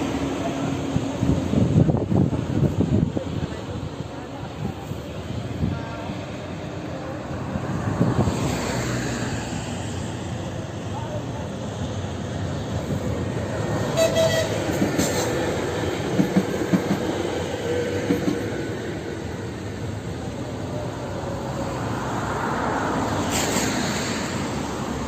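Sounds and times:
electric train passing: 0.0s - 25.0s
train wheels clacking over rail joints: 13.9s - 17.2s.

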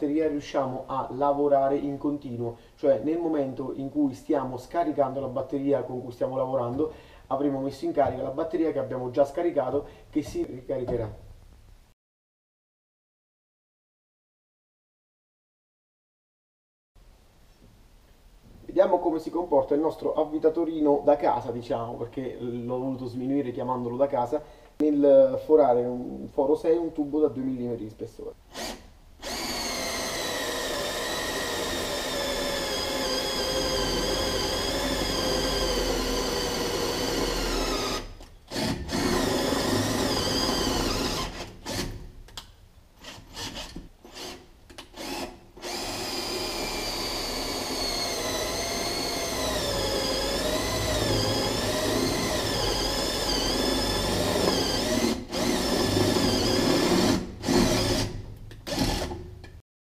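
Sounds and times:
cordless drill drilling metal: 28.5s - 42.0s, 43.0s - 59.3s.

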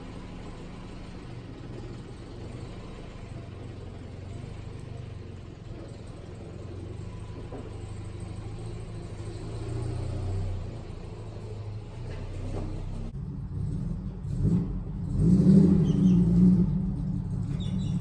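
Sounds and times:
engine low rumble: 0.0s - 18.0s.

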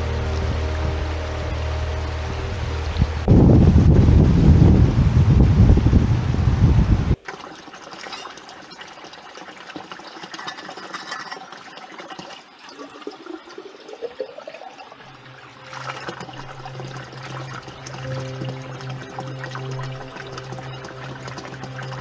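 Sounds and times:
wind buffeting microphone: 0.0s - 7.2s
water filling plastic bottle: 7.2s - 22.0s.

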